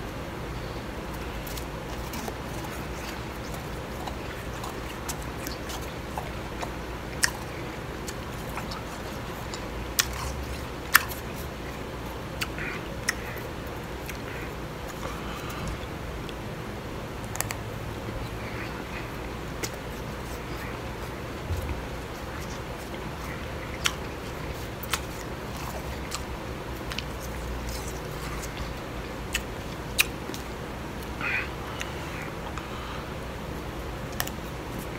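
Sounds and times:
person chewing crushed ice: 1.1 - 16.4, 17.2 - 33.2.

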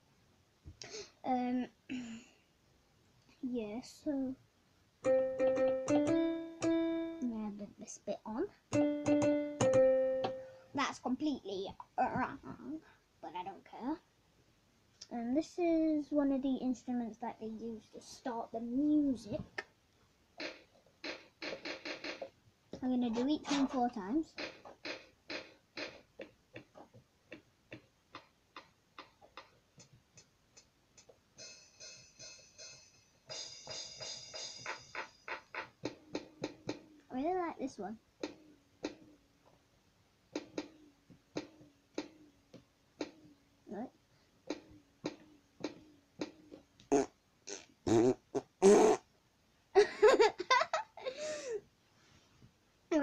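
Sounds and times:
electronic percussion ticks: 5.0 - 7.3, 8.7 - 10.5.

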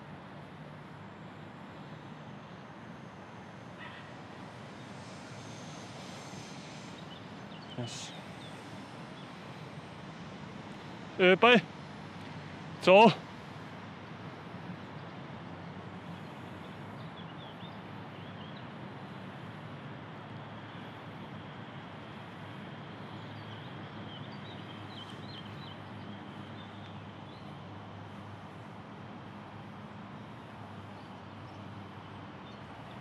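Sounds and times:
small birds chirping: 3.8 - 9.7, 16.0 - 19.2, 23.0 - 28.3.

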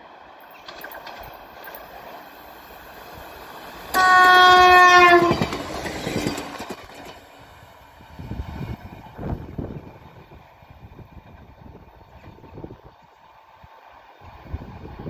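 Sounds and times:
wheels clattering over rail joints: 0.4 - 7.8
train horn blast: 3.9 - 5.6.

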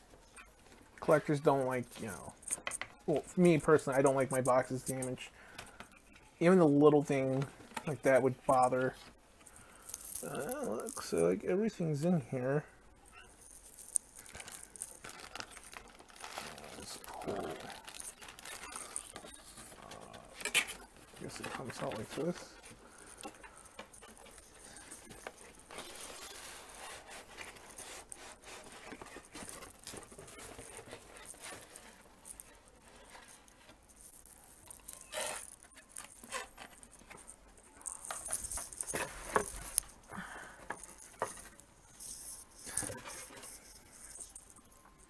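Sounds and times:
packaging rustling and scraping: 0.2 - 5.8, 6.4 - 11.4, 13.1 - 45.0.

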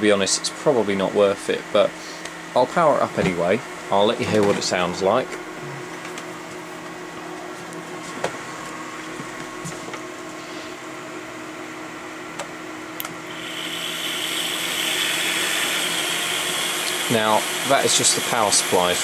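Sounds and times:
steady background hum: 0.0 - 19.0
power supply fans whooshing: 13.0 - 19.0.

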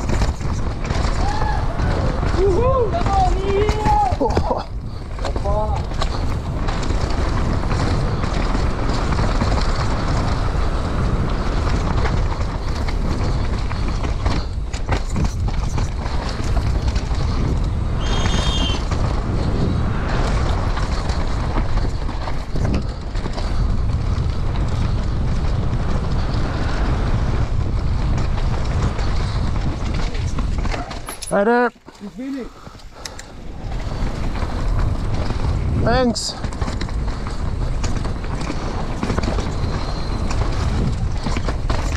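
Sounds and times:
bike rattling over bumps: 0.0 - 41.9
tyres rolling on loose dirt: 0.0 - 41.9
wind rushing over microphone: 0.0 - 41.9
high whistling tone: 18.0 - 18.9.

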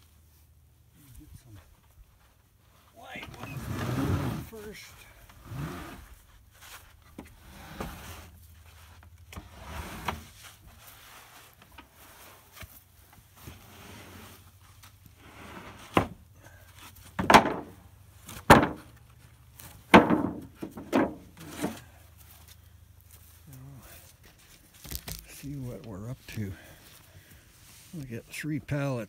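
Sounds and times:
wooden boards sliding and scraping: 3.1 - 22.0
boards dropped onto stack: 17.2 - 18.9, 19.9 - 21.8.

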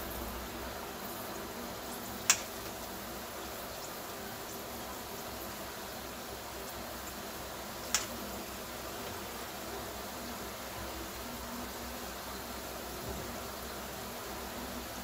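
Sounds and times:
batter sizzling in oil: 0.0 - 15.0.

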